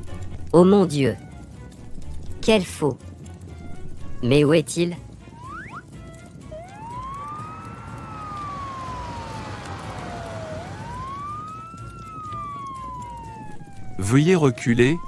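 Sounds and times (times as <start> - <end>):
fire engine siren wailing: 5.3 - 15.0.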